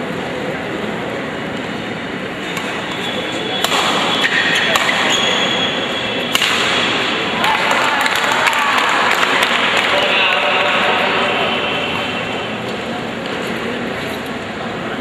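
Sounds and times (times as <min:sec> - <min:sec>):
spectators chattering: 0:00.0 - 0:15.0
rackets striking shuttlecock: 0:02.4 - 0:05.4, 0:06.2 - 0:07.2
shoes squeaking on court floor: 0:02.4 - 0:06.3.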